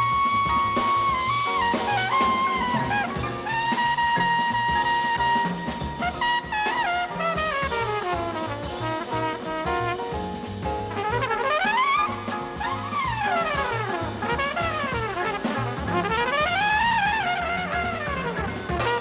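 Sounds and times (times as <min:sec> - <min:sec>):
drum kit: 0:00.0 - 0:19.0
flugelhorn jazz solo: 0:00.0 - 0:19.0
walking bass: 0:00.0 - 0:19.0.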